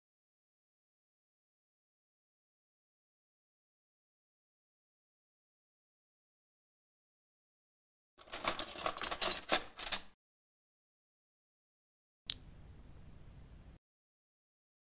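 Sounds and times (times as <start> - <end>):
typewriter keys clacking: 8.2 - 10.2
typewriter bell ding: 12.3 - 13.3.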